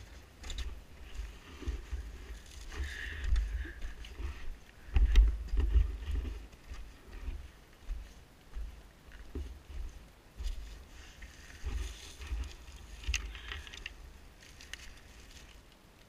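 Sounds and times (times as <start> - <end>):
twigs crackling: 0.0 - 16.0
footsteps on frosty leaves: 5.6 - 13.1.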